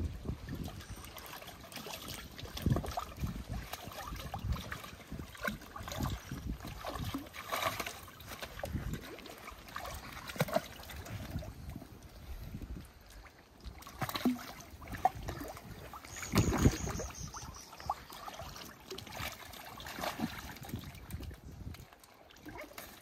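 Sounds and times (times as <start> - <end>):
otters splashing in water: 0.6 - 11.5, 13.8 - 21.2.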